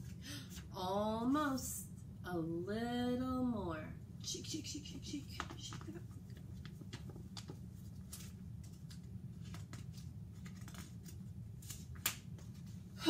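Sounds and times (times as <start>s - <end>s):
steady low hum: 0.0s - 13.0s
book pages rustling: 5.4s - 12.9s.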